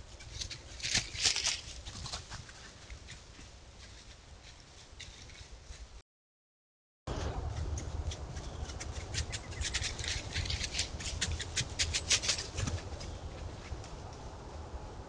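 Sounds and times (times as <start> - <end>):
animal stepping through dry leaves: 0.3 - 2.5
low steady rumble: 7.1 - 15.0.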